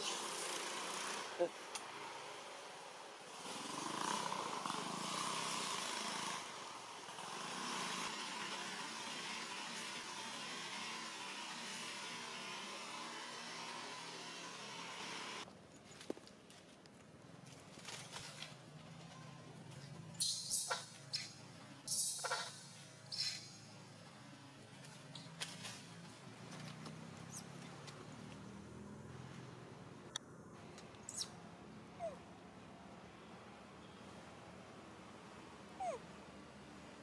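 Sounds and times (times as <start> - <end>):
baby monkey screaming: 31.1 - 31.3
young monkey crying: 32.0 - 32.3, 35.8 - 36.0.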